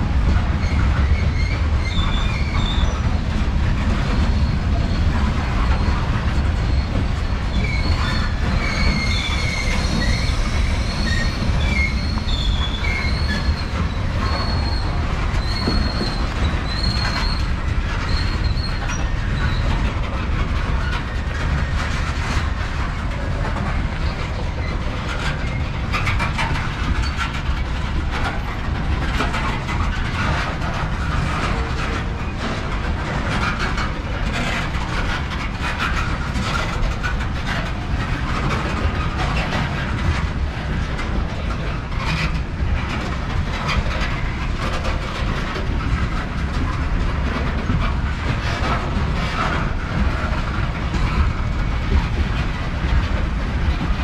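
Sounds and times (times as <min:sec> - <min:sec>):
train wheels rumbling on rail: 0:00.0 - 0:54.0
wheels clicking over rail joints: 0:00.0 - 0:54.0
high-pitched wheel squeal: 0:00.6 - 0:03.1, 0:06.7 - 0:19.7.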